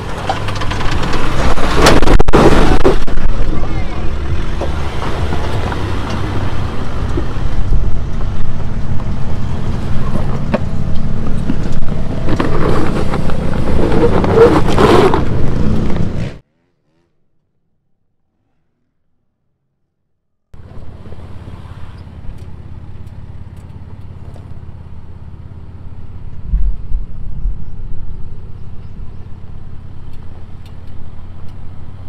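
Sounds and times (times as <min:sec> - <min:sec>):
tyres crunching on stones: 0:00.0 - 0:16.4
diesel engine crawling: 0:00.0 - 0:17.6, 0:20.6 - 0:32.0.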